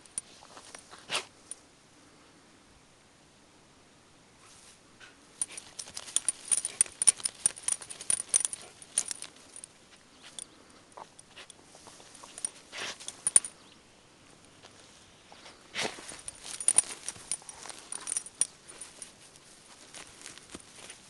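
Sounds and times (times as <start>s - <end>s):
dog tag and leash clip jingling: 5.4s - 13.7s, 15.8s - 21.0s.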